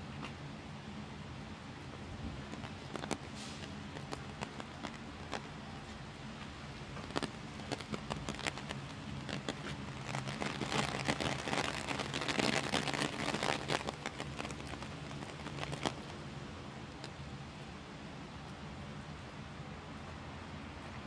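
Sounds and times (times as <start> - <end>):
heavy rain: 6.7 - 16.2.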